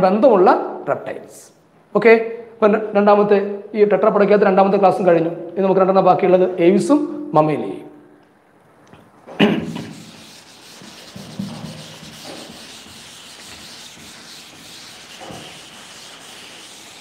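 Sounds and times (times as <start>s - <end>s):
duster rubbing on blackboard: 9.6s - 17.0s.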